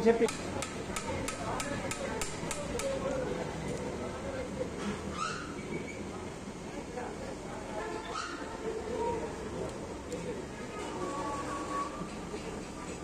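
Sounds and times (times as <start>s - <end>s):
hammer striking steel: 0.3s - 3.0s.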